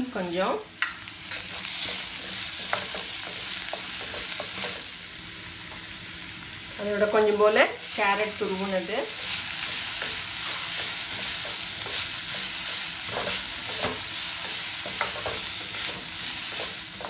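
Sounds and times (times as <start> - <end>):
vegetables sizzling in oil: 0.0 - 17.0
spatula scraping and knocking pan: 0.8 - 4.9, 9.2 - 17.0.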